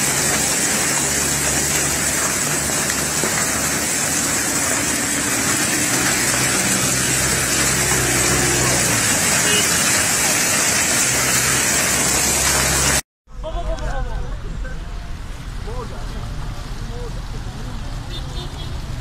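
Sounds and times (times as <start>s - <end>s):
hail and rain on cars: 0.0s - 13.0s.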